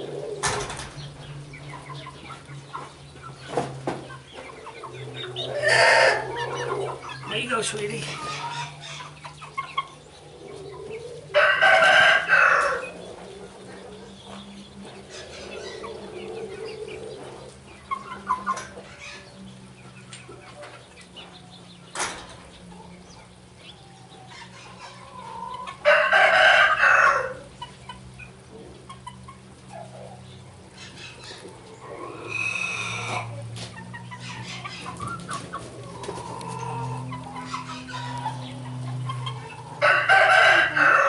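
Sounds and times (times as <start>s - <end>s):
chickens clucking: 0.0s - 41.0s
rooster crowing: 5.5s - 6.6s, 11.3s - 13.0s, 25.8s - 27.5s, 39.4s - 41.0s.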